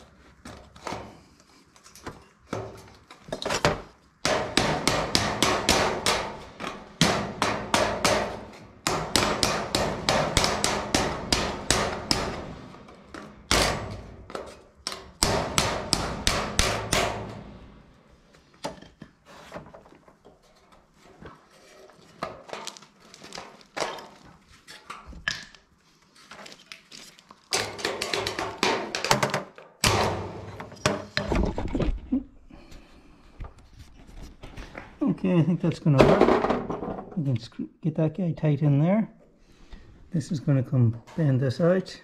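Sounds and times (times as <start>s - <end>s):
hammer tapping sheet metal: 4.2s - 17.9s.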